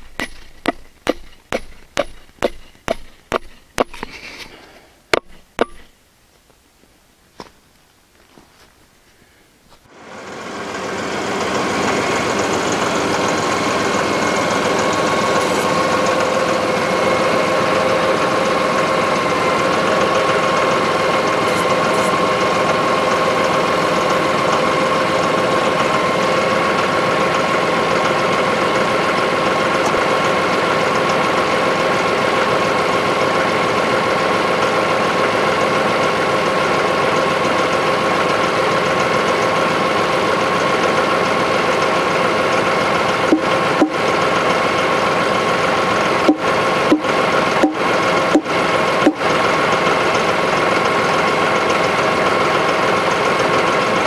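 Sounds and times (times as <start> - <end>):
tractor diesel engine running: 0.0 - 6.0, 9.9 - 54.0
steady whine: 0.0 - 6.6, 9.9 - 26.0, 42.0 - 50.2.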